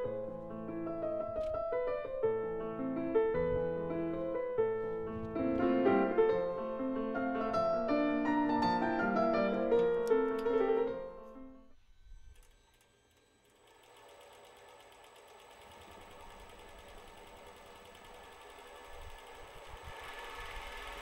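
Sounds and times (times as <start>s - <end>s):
piano background music: 0.0s - 11.7s
vibrator motor ticking: 12.2s - 21.0s.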